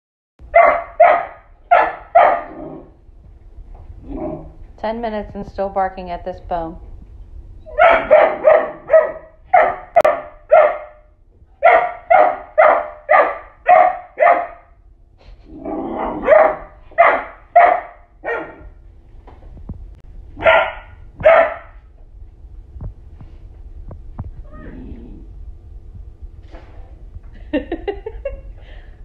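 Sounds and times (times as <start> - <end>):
dog barking: 0.5 - 2.6, 7.7 - 14.7, 16.2 - 18.7, 20.4 - 21.8.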